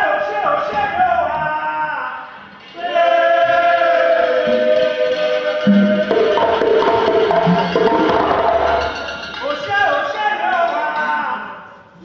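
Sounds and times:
voices chanting: 0:02.4 - 0:09.6
low hand-drum strokes: 0:04.2 - 0:09.4.

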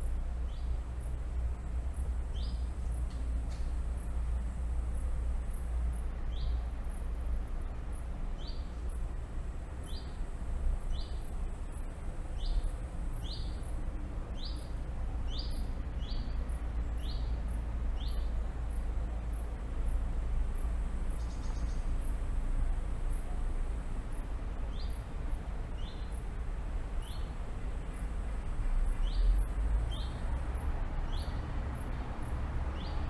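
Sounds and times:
bird chirping: 0:06.3 - 0:06.7, 0:12.4 - 0:13.7, 0:14.4 - 0:14.7, 0:15.3 - 0:17.4, 0:18.0 - 0:18.3, 0:21.1 - 0:21.9, 0:25.8 - 0:26.2, 0:27.0 - 0:27.4, 0:28.9 - 0:30.2, 0:31.0 - 0:31.4.

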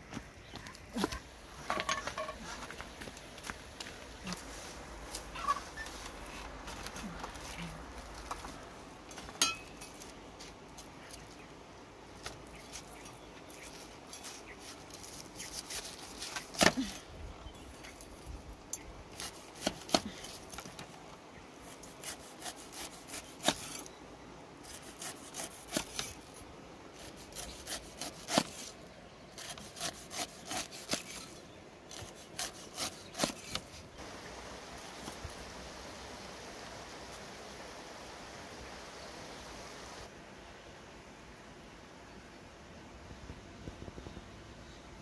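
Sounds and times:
cleaver slicing pineapple rind: 0:13.6 - 0:16.9, 0:19.2 - 0:20.6, 0:21.7 - 0:23.9, 0:24.7 - 0:26.2, 0:27.0 - 0:28.8, 0:29.4 - 0:33.8
steady hiss: 0:33.9 - 0:44.0.

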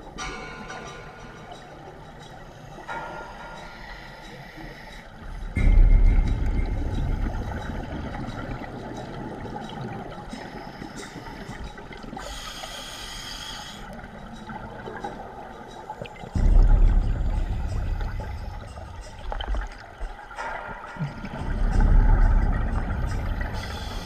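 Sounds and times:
exhaled bubbles rumbling underwater: 0:05.1 - 0:12.4, 0:13.9 - 0:24.0
regulator inhalation hiss: 0:12.2 - 0:14.0.

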